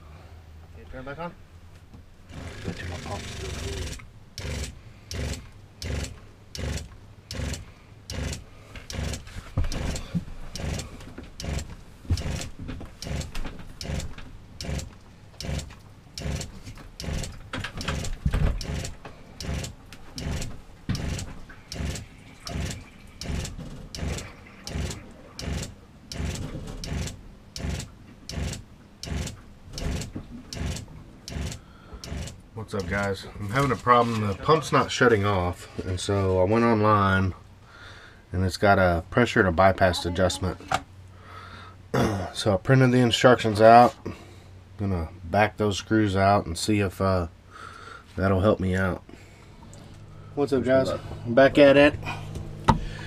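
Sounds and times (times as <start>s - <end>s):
water pump pulsing: 2.3s - 32.3s.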